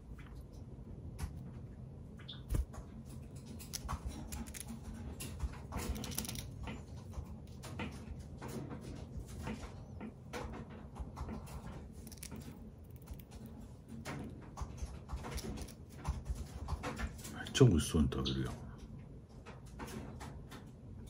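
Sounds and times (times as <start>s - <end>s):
bird pecking crunchy wafer: 2.6s - 17.2s.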